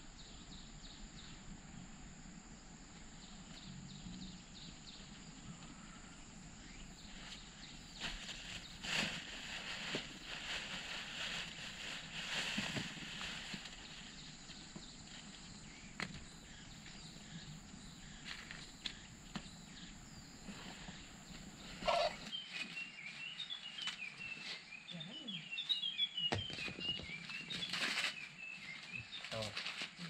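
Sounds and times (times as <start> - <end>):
corn cobs rustling and knocking: 8.0 - 15.4
birds chirping: 13.7 - 29.6.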